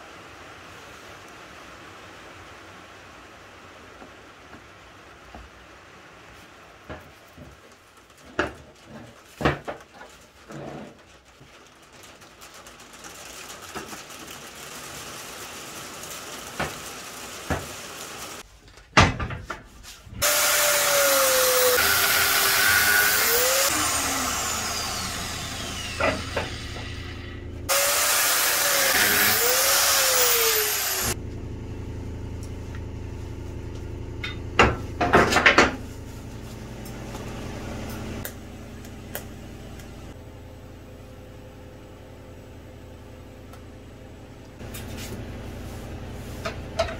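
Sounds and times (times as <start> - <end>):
power tool grinding metal: 20.2 - 31.2.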